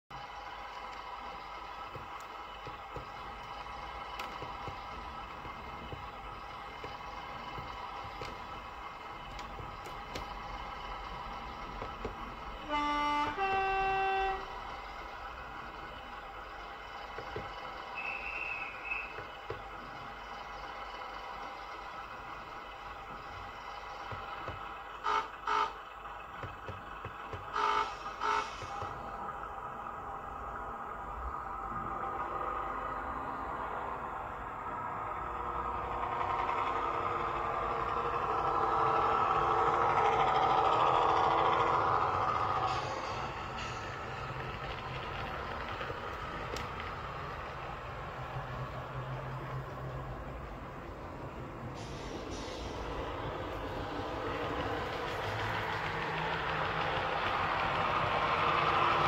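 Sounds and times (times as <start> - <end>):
model train diesel engine sound: 0.1 - 59.0
two-tone train horn: 12.5 - 14.8, 25.0 - 25.9, 27.3 - 29.0.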